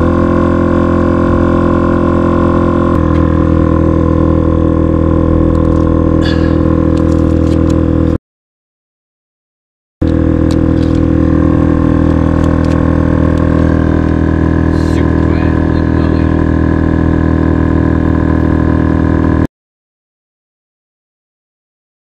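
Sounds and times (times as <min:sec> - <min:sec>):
air compressor running: 0:00.0 - 0:08.2, 0:10.0 - 0:19.5.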